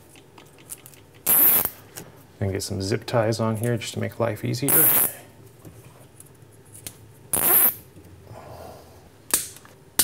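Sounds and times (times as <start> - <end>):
zip tie ratcheting: 1.2 - 1.8, 4.7 - 5.1, 7.3 - 7.8.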